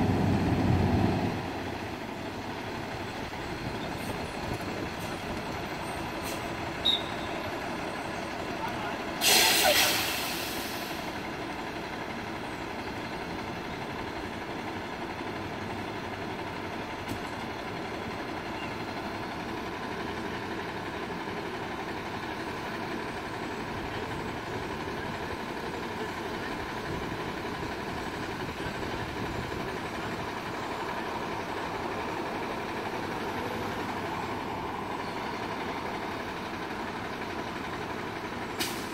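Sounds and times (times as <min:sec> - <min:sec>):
diesel truck engine idling: 0:00.0 - 0:38.9.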